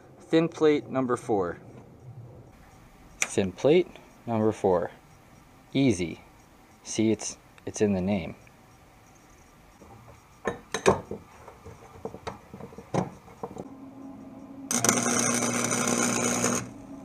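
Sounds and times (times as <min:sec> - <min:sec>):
steady low hum: 0:00.0 - 0:17.0
welder crackling: 0:14.7 - 0:16.9.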